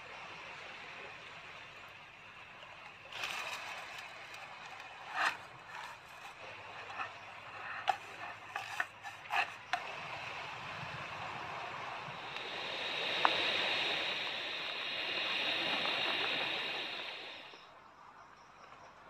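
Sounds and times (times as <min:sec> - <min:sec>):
steady hiss: 0:00.0 - 0:17.8
wooden spoon scraping a pan: 0:03.2 - 0:09.8.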